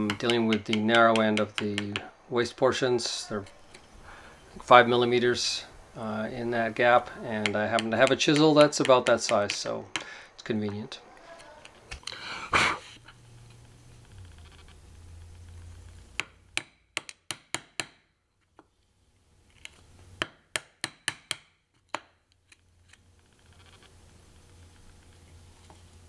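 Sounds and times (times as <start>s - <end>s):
mallet striking chisel: 0.0s - 2.1s, 7.4s - 10.1s, 16.2s - 18.0s, 20.2s - 21.6s.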